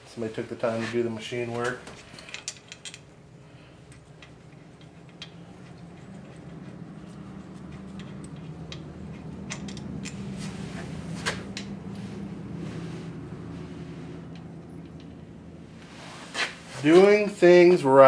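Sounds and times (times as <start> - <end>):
steady low hum: 0.0 - 18.0
clicks and taps of handling engine parts: 3.9 - 6.6, 7.8 - 10.3, 14.3 - 15.2.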